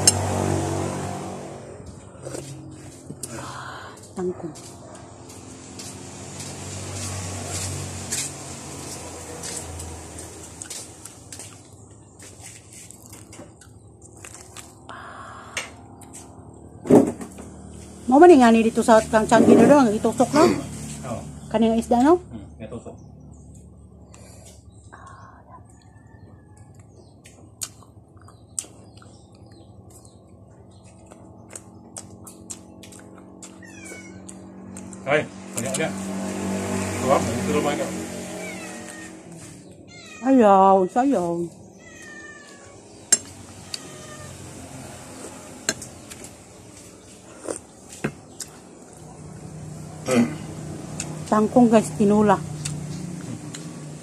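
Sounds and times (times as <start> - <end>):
mouth clicks and smacks while chewing: 26.6 - 30.1, 30.8 - 33.6, 34.2 - 35.0, 48.3 - 49.0, 50.9 - 51.2, 52.6 - 53.7.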